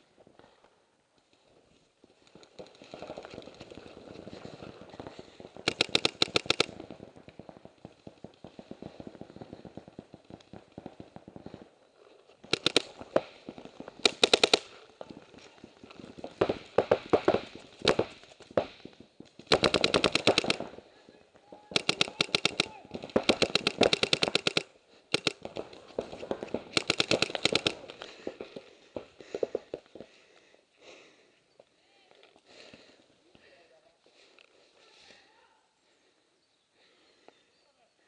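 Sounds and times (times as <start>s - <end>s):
paintball markers firing: 5.1s - 11.5s, 12.4s - 15.2s, 16.2s - 20.8s, 21.7s - 30.1s.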